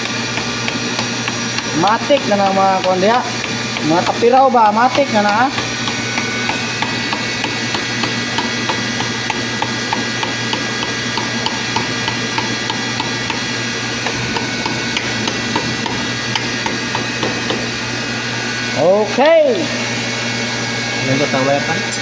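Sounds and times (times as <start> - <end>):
hammer tapping on metal: 4.8 - 17.7.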